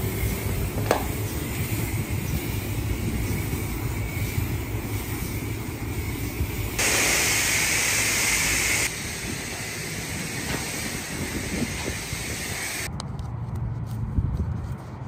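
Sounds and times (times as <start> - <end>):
pressure washer spraying hiss: 6.0 - 12.9.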